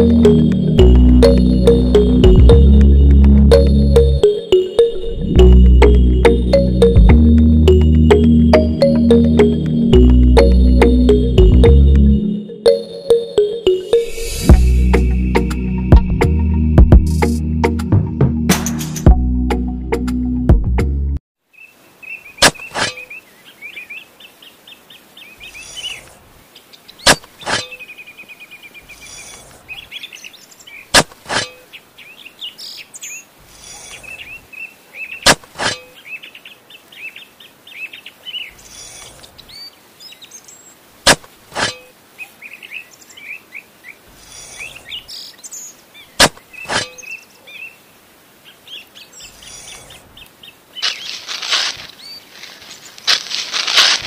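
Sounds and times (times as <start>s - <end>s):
small birds chirping: 21.5s - 40.9s, 42.1s - 53.2s
soft scraping rustles: 50.8s - 54.0s.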